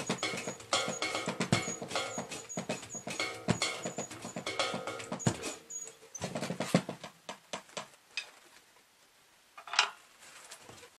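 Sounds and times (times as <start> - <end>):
drum and cymbal hits: 0.0 - 7.0.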